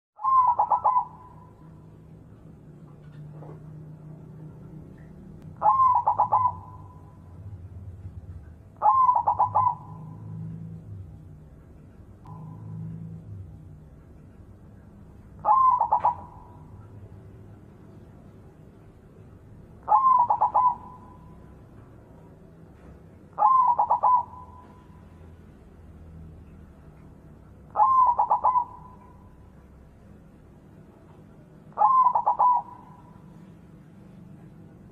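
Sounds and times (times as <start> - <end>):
dove cooing: 0.2 - 1.6, 5.6 - 7.3, 8.8 - 10.8, 15.4 - 16.9, 19.8 - 21.5, 23.3 - 25.0, 27.7 - 29.3, 31.7 - 33.5.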